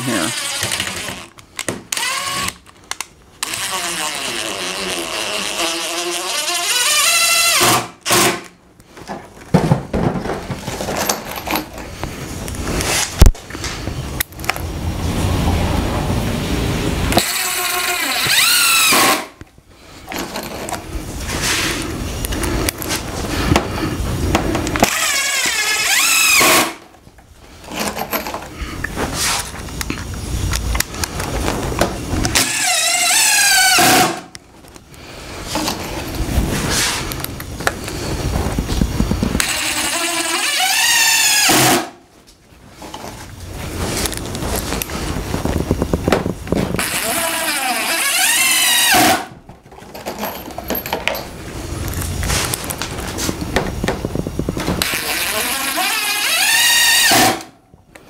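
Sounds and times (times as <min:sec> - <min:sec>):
cordless drill driving screw: 0:00.0 - 0:08.5, 0:17.2 - 0:19.3, 0:24.8 - 0:26.8, 0:32.3 - 0:34.2, 0:39.4 - 0:41.8, 0:46.8 - 0:49.2, 0:54.8 - 0:57.5
wooden box knocking and scraping: 0:09.0 - 0:11.1.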